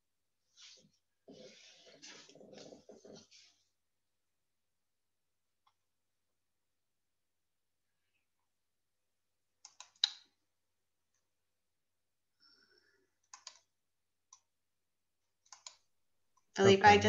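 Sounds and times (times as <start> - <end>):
computer mouse clicks: 9.6 - 10.3, 13.2 - 13.7, 15.4 - 15.8.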